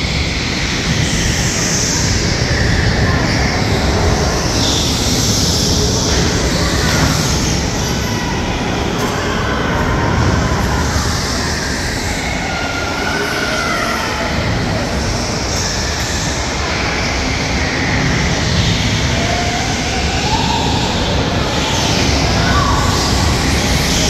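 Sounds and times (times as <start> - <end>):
electric go-kart motors whining: 0.0 - 24.0.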